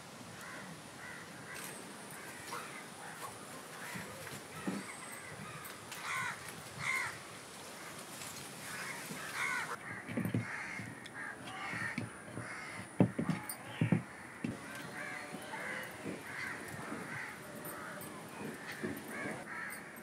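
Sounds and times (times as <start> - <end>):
crows cawing: 0.4 - 7.2, 8.6 - 20.0
sharp knocks: 10.0 - 19.5.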